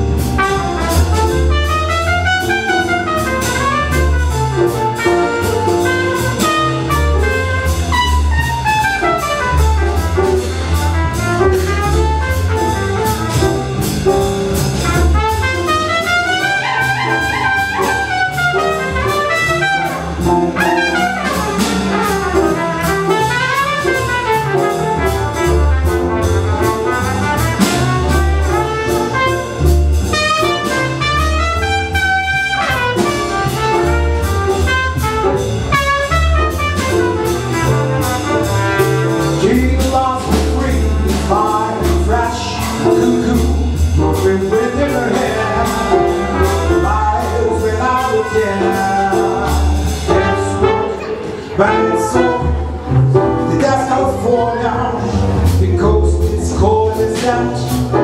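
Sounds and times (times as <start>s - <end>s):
trumpet solo: 0.0s - 13.9s, 14.8s - 43.7s, 44.6s - 53.0s
drum kit: 0.0s - 58.0s
piano: 0.0s - 58.0s
walking double bass: 0.0s - 58.0s.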